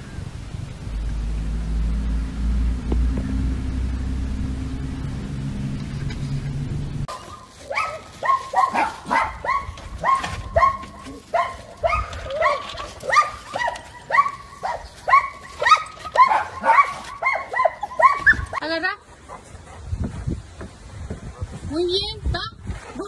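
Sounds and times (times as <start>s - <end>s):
dogs barking: 7.1s - 18.6s.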